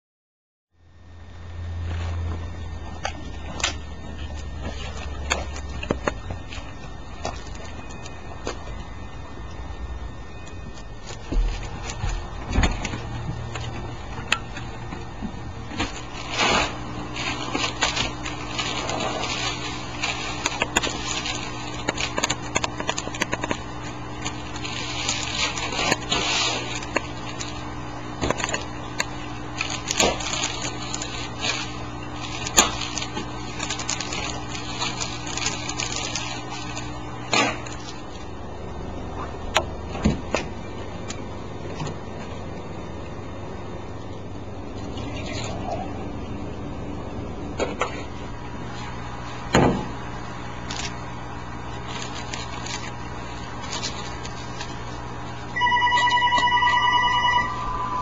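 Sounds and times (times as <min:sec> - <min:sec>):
cellophane crinkling: 0:02.9 - 0:09.0, 0:10.6 - 0:38.3, 0:50.4 - 0:58.0
low hum: 0:55.5 - 0:58.0.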